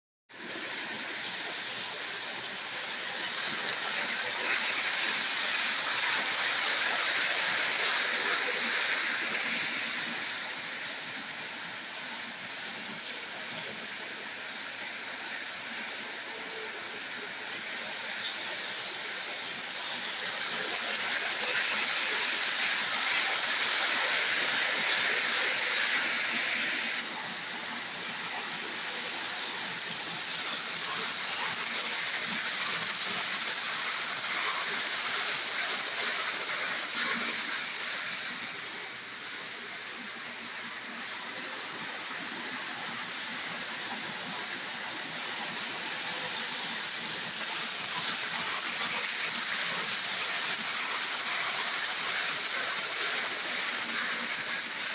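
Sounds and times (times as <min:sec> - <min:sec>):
model train wheels clattering: 0:01.3 - 0:10.4, 0:15.7 - 0:38.9, 0:43.8 - 0:54.9.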